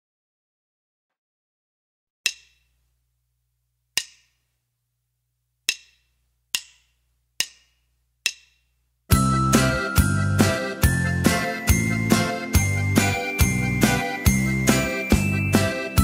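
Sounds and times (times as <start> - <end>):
sharp wooden clicks counting in: 2.3 - 2.7, 4.0 - 4.4, 5.7 - 8.7.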